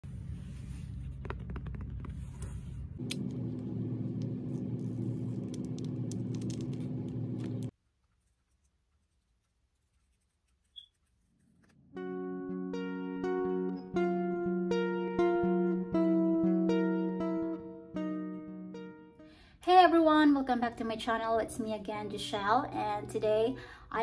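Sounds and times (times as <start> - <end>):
low steady hum: 0.0 - 7.7.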